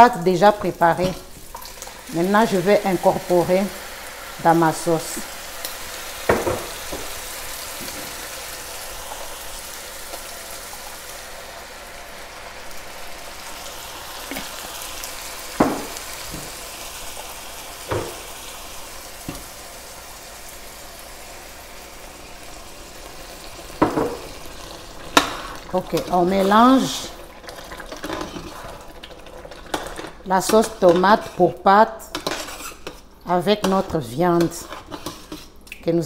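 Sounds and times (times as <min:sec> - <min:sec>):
meat sizzling in a pot: 0:00.0 - 0:33.2
knocks against a pot: 0:15.6 - 0:15.9.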